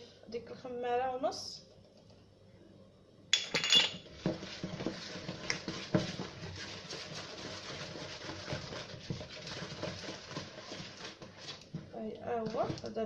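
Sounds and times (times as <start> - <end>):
batter stirred in plastic bowl: 4.0 - 13.0.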